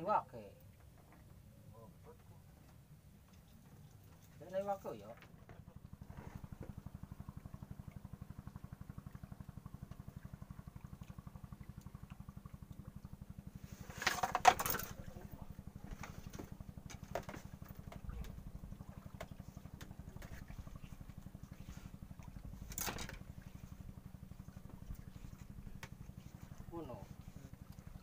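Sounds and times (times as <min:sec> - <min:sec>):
small engine running: 0:05.7 - 0:28.0.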